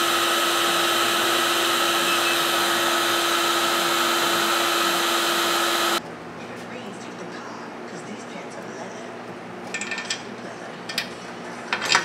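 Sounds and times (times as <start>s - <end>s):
heat gun blowing: 0.0s - 6.0s.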